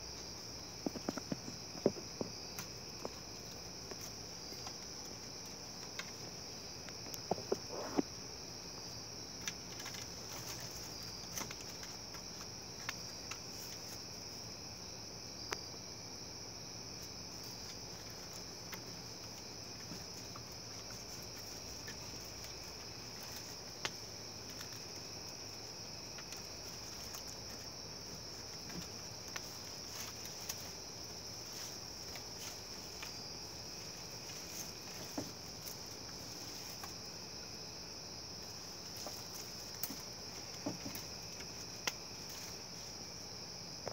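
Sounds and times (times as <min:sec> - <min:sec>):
crickets chirping: 0:00.0 - 0:43.9
light clicks and scratches: 0:09.3 - 0:14.2, 0:17.0 - 0:37.1, 0:38.3 - 0:43.0.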